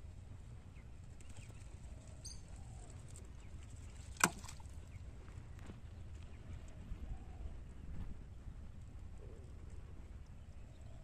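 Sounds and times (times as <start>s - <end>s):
low steady rumble: 0.0s - 11.0s
fishing float plopping into water: 4.1s - 4.7s.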